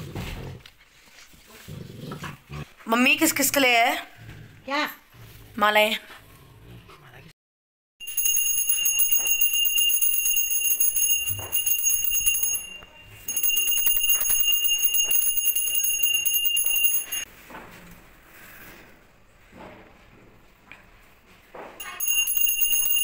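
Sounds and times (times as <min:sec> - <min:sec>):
small hand bell ringing: 0:08.0 - 0:17.3, 0:21.8 - 0:23.0.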